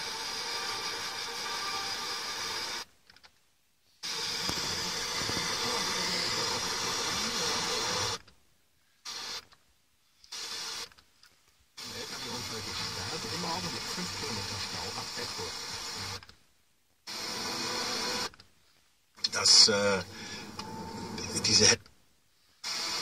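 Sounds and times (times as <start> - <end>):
radio static hiss: 0.0 - 2.9, 3.9 - 8.3, 9.0 - 9.5, 10.2 - 11.0, 11.7 - 16.4, 17.0 - 18.4, 19.2 - 21.9, 22.6 - 23.0.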